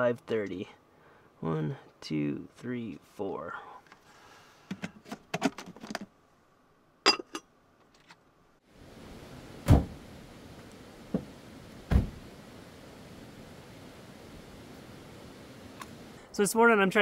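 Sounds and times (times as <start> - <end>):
outdoor hiss: 8.5 - 17.0
heavy thumps of van doors: 9.6 - 10.0, 11.9 - 12.2.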